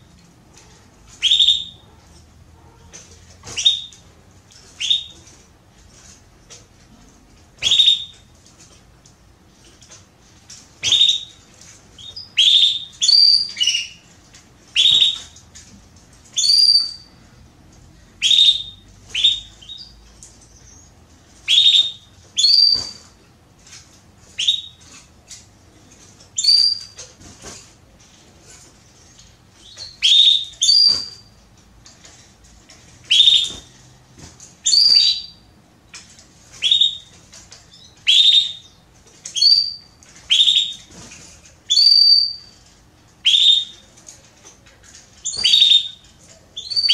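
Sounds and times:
canary chirping: 0:01.1 - 0:05.3, 0:07.6 - 0:08.3, 0:10.8 - 0:14.1, 0:14.7 - 0:15.4, 0:16.3 - 0:17.2, 0:18.2 - 0:23.2, 0:24.2 - 0:25.4, 0:26.3 - 0:27.0, 0:28.9 - 0:31.4, 0:33.0 - 0:33.8, 0:34.6 - 0:41.0, 0:41.7 - 0:42.6, 0:43.2 - 0:43.9, 0:45.1 - 0:46.9.

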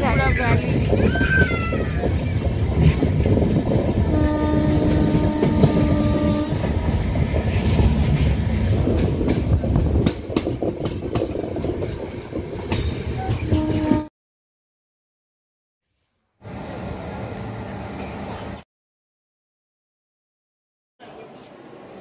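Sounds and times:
train rumble and wheel clatter: 0:00.0 - 0:14.1, 0:16.4 - 0:18.6
train horn: 0:04.1 - 0:06.7, 0:13.5 - 0:14.1.

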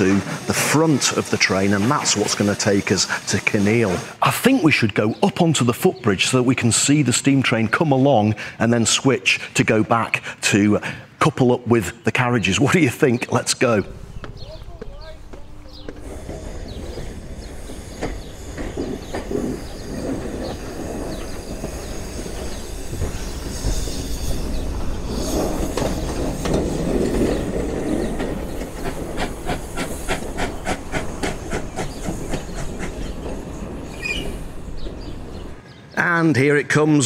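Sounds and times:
steam locomotive hissing and chuffing: 0:00.0 - 0:07.3, 0:13.7 - 0:35.6.

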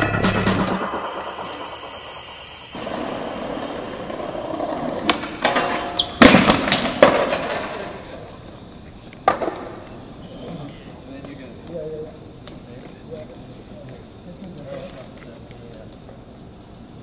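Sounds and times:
skateboard wheels rolling: 0:00.5 - 0:17.0
skateboard clacking and slamming: 0:02.8 - 0:08.4, 0:09.2 - 0:09.9.

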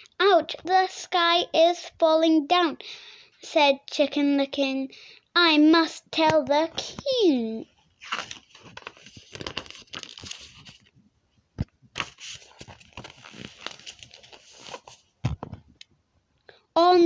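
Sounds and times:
paper pages rustling: 0:08.0 - 0:11.0, 0:11.6 - 0:15.6.

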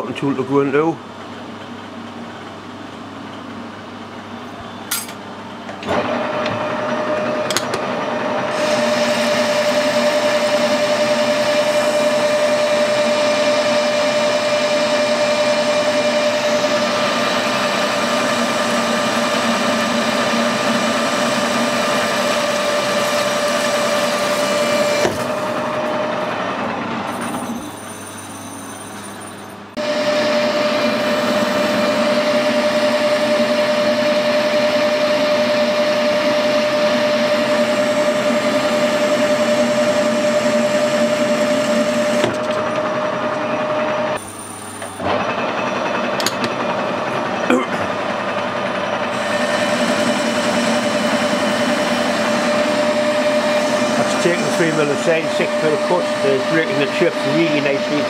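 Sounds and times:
metal lathe gear whine: 0:00.0 - 0:58.0
tool cutting steel bar: 0:49.1 - 0:58.0.

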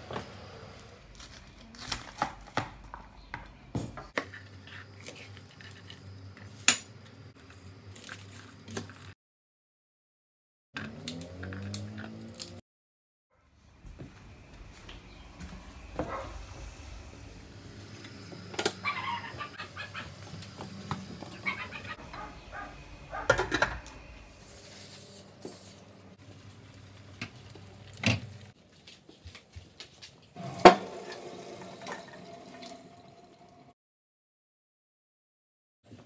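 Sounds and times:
low hum: 0:13.6 - 0:26.2
pans and utensils clattering: 0:18.5 - 0:25.7
cooking spray hissing onto foil: 0:24.2 - 0:26.7.

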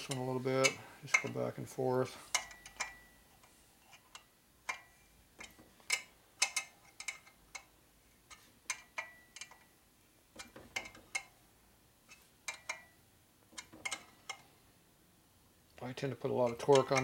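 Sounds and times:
wrench clicking on metal bolts: 0:02.3 - 0:03.1, 0:03.8 - 0:09.7, 0:10.4 - 0:11.4, 0:12.5 - 0:14.5, 0:16.4 - 0:17.0.

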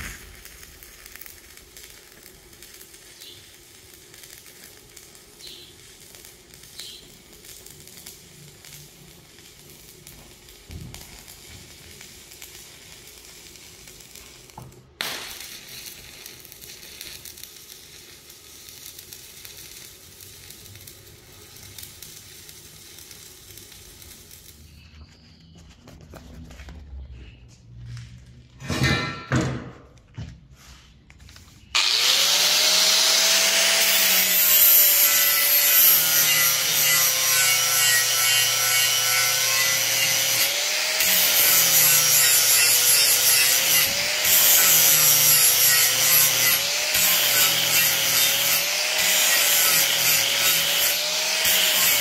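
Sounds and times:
arc welding crackling sizzle: 0:00.0 - 0:25.0, 0:31.6 - 0:52.0.

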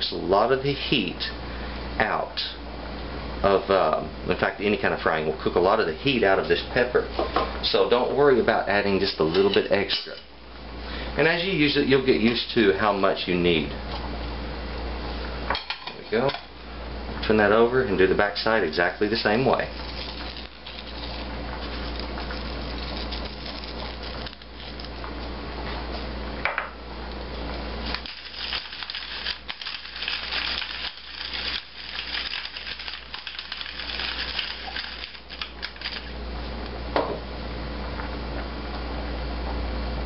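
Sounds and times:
steady low hum: 0:00.0 - 0:40.0
pepper mill grinding: 0:19.2 - 0:25.0, 0:27.8 - 0:36.2.

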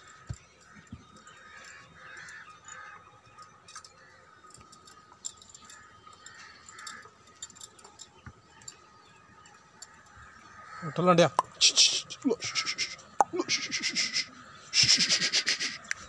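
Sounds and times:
faint clinks and taps: 0:00.0 - 0:10.7.

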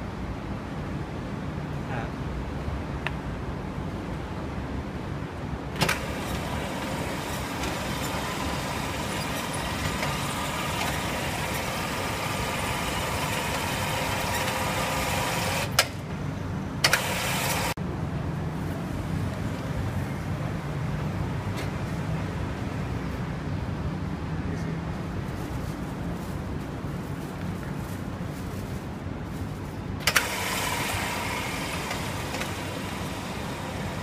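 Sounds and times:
hissing machine noise: 0:05.8 - 0:16.0, 0:16.8 - 0:17.8, 0:30.0 - 0:34.0.

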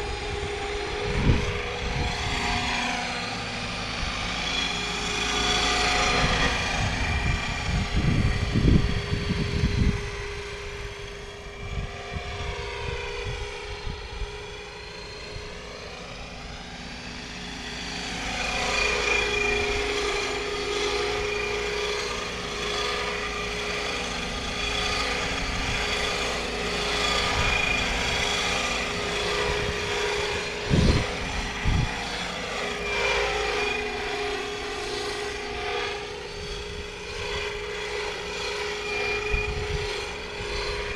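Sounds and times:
model helicopter rotor noise: 0:00.0 - 0:40.9
turbine whine: 0:00.0 - 0:40.9.

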